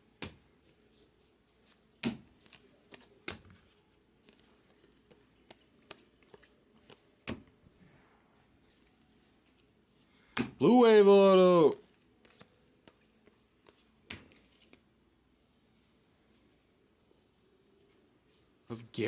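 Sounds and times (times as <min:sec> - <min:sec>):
cards clicking and sliding: 0:00.2 - 0:07.6, 0:11.8 - 0:14.8.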